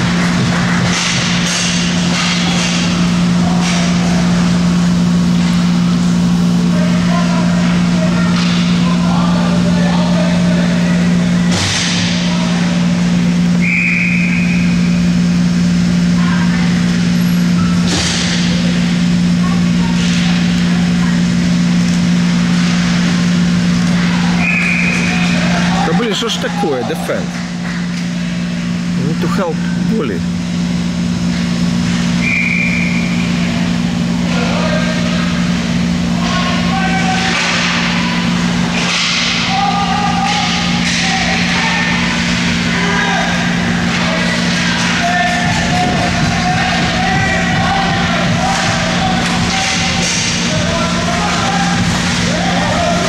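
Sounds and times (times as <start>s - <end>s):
constant low hum: 0.0s - 53.0s
referee's whistle: 13.6s - 14.8s, 24.4s - 25.1s, 32.2s - 33.2s
distant shouts: 36.1s - 53.0s.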